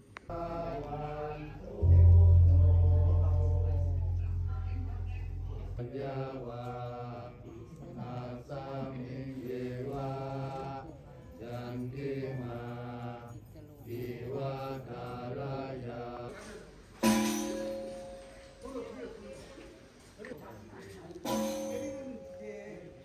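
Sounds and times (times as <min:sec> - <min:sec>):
men chanting in unison: 0:00.3 - 0:03.9, 0:05.8 - 0:16.7
loud music: 0:01.8 - 0:05.9.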